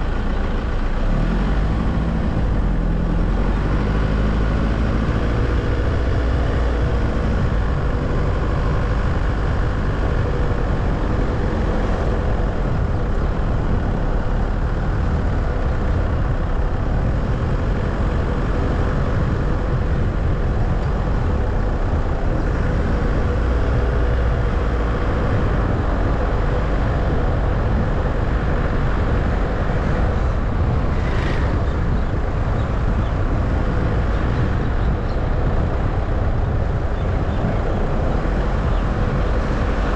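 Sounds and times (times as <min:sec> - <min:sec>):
car driving rumble: 0:00.0 - 0:39.9.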